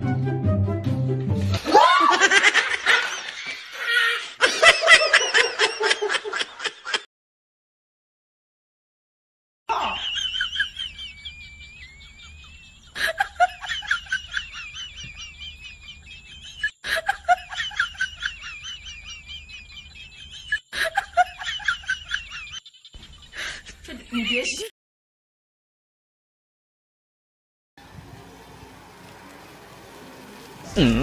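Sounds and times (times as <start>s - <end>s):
high-pitched laughter: 1.6s - 7.0s, 9.7s - 24.7s.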